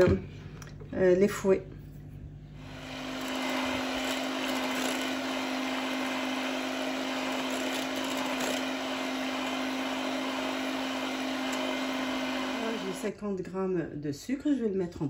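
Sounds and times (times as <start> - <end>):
electric hand mixer whirring: 2.6 - 13.1.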